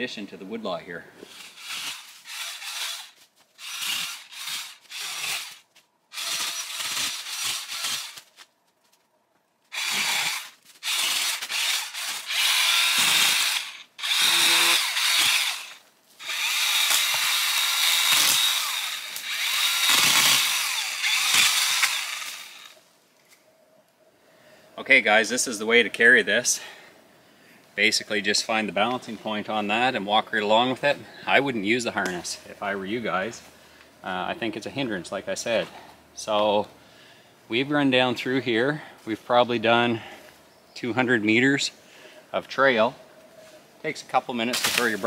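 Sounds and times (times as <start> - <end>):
cordless pole saw motor whine: 9.7 - 22.8.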